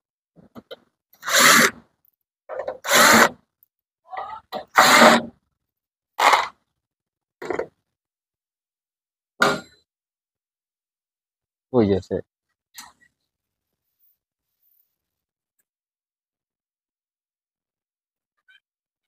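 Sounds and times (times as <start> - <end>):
cordless drill bursts: 1.2 - 1.8, 2.8 - 3.3.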